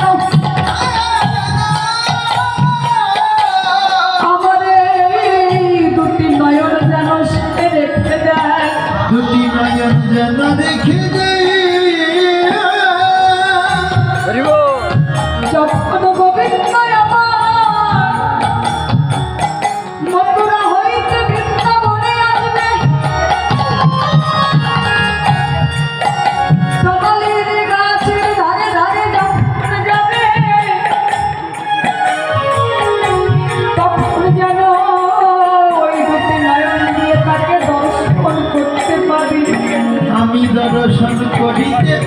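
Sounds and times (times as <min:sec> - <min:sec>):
hand drum rhythm: 0:00.0 - 0:42.0
keyboard accompaniment: 0:00.0 - 0:42.0
woman singing into microphone: 0:00.0 - 0:42.0.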